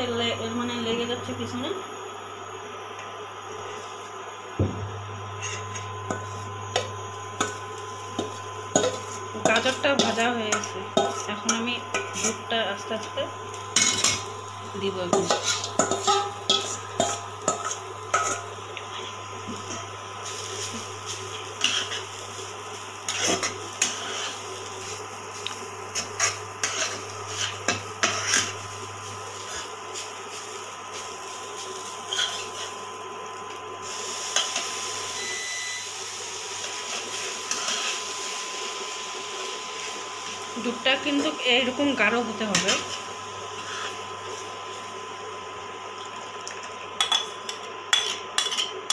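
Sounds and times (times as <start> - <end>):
steady hum: 0.0 - 48.9
metal spoon scraping metal pan: 5.4 - 6.9, 8.2 - 12.4, 15.1 - 19.8, 21.3 - 22.1, 23.0 - 24.4, 25.9 - 28.6, 32.1 - 32.7, 37.5 - 38.0.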